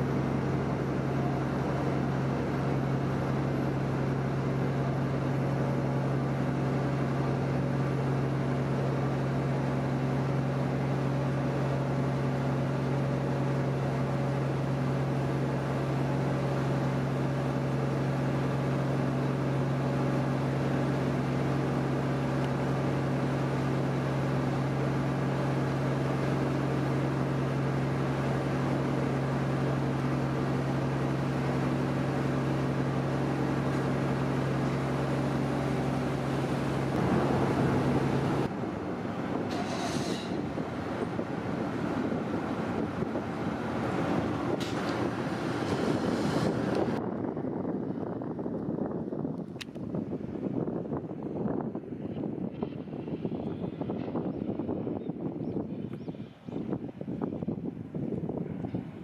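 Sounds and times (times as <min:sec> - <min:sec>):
ferry engine drone: 0:00.0 - 0:59.0
hiss of noise: 0:39.5 - 0:40.7.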